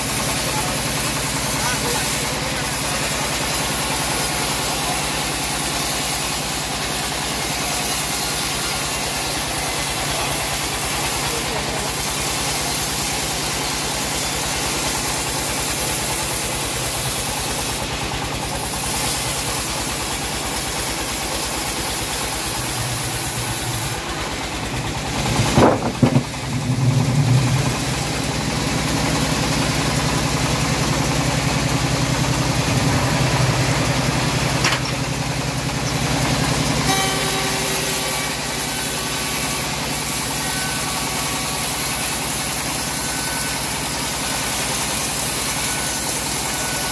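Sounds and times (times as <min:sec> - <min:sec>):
bandsaw mill cutting log: 0:00.0 - 0:46.9
thin whine: 0:36.1 - 0:41.6.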